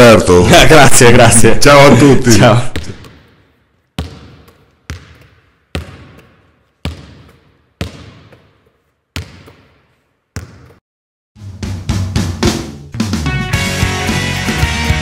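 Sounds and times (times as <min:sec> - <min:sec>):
basketball bouncing on hard court: 0:02.8 - 0:10.8.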